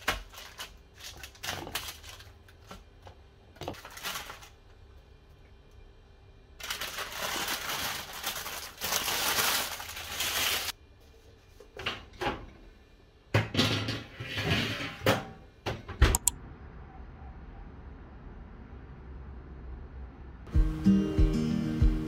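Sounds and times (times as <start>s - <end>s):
baking paper crumpling: 0.0s - 5.0s, 6.6s - 10.8s
metal baking tray clattering: 13.4s - 15.4s
sharp clicks: 16.1s - 16.4s.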